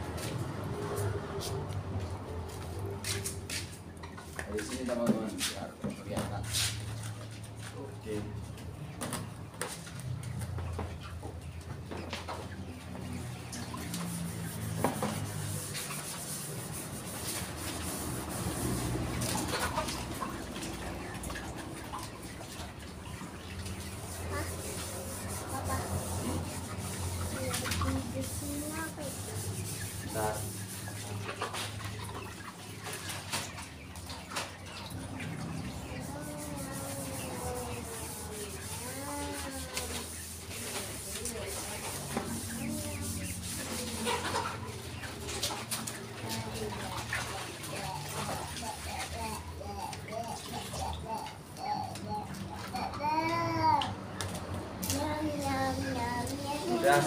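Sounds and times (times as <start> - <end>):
hens clucking: 8.2 - 53.0
plastic bucket scrubbed: 11.7 - 51.6
water rinsing: 13.2 - 57.0.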